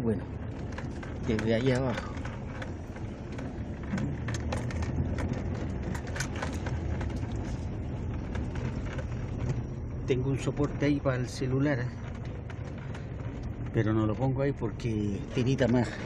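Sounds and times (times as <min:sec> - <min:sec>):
car engine and tyres rumbling: 0:00.0 - 0:16.0
small clicks and knocks: 0:00.5 - 0:09.7.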